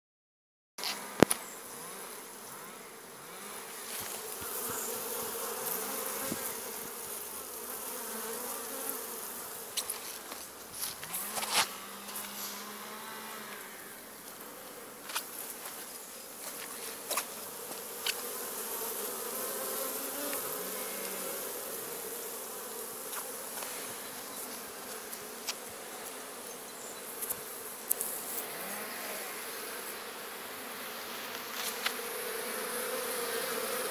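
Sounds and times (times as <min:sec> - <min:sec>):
bee flying past: 0:00.8 - 0:33.9
bees buzzing: 0:00.9 - 0:33.9.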